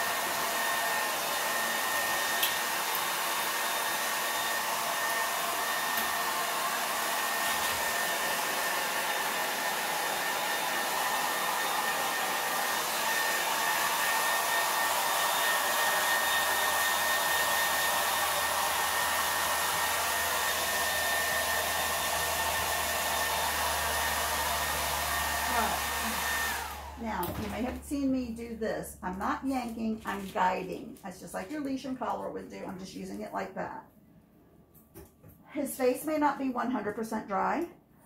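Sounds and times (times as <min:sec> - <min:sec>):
blow dryer running: 0:00.0 - 0:28.2.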